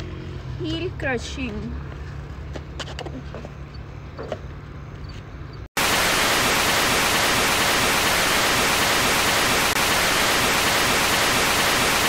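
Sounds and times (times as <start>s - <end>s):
tv static hiss: 5.8s - 12.0s.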